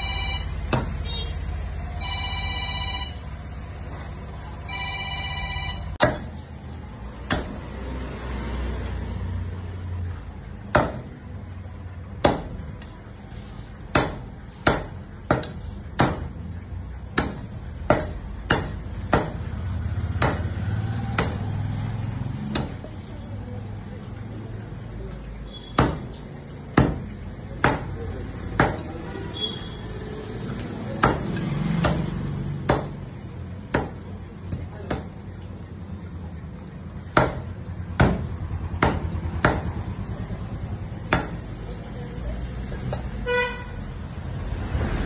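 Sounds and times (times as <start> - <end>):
electronic ringing tone: 0.0 - 1.2, 2.0 - 3.3, 4.7 - 6.0
cleaver chopping on wooden block: 0.7 - 1.0, 6.0 - 6.3, 7.3 - 7.6, 10.7 - 11.1, 12.2 - 12.6, 13.9 - 16.4, 17.2 - 19.5, 20.2 - 20.6, 21.2 - 21.5, 25.8 - 26.1, 26.8 - 28.0, 28.6 - 28.9, 31.0 - 33.0, 33.7 - 35.1, 37.1 - 39.7, 41.1 - 41.4.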